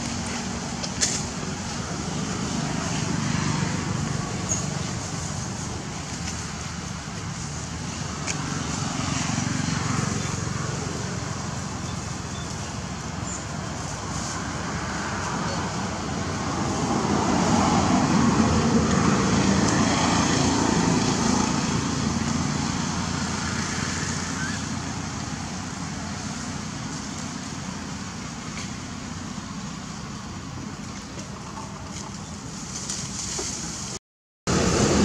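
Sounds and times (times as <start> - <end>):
road vehicle passing: 0.0 - 35.0.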